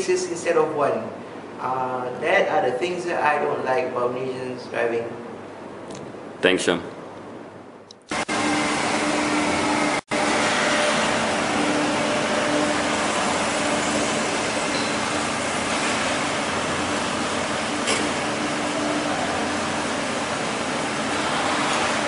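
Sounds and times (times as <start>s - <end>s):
rushing noise of car park: 7.4s - 22.0s.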